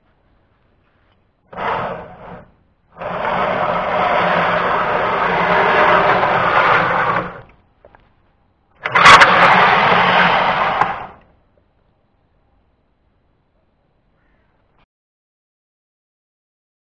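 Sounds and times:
small electric motor running: 1.5 - 7.5, 8.8 - 11.2.

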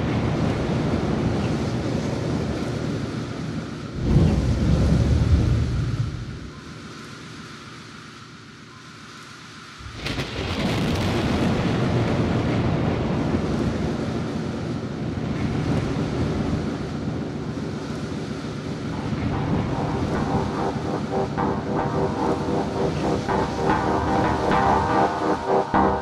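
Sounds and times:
thunderclap: 4.0 - 6.5, 9.8 - 13.7
rolling thunder rumble: 4.0 - 6.6, 9.8 - 17.5
faint musical tones: 18.6 - 26.0.

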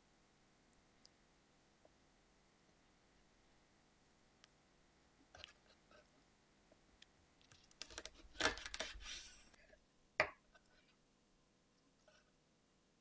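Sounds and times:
knife scraping cutting board: 7.8 - 9.6.

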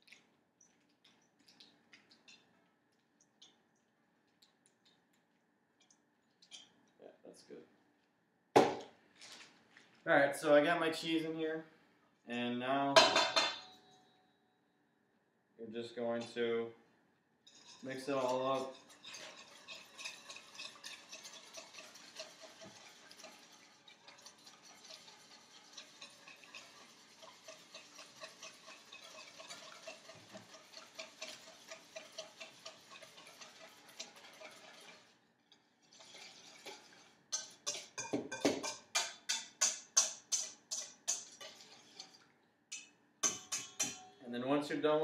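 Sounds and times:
fork beating eggs in metal bowl: 17.5 - 44.2.

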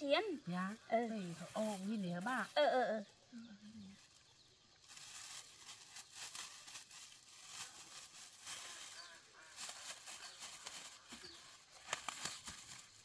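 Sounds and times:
plastic bag crinkling: 4.8 - 13.0.

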